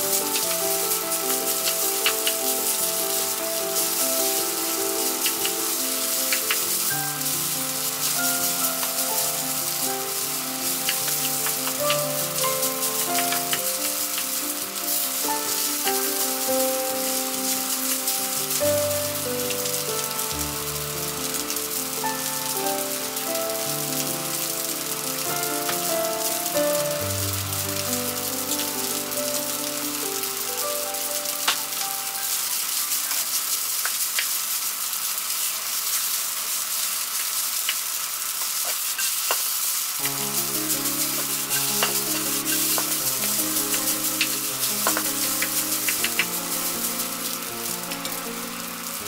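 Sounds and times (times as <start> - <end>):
background music with held notes: 0.0 - 33.3, 40.0 - 49.0
rice sizzling in frying pan: 0.0 - 49.0
spatula scraping and tapping pan: 41.1 - 46.3.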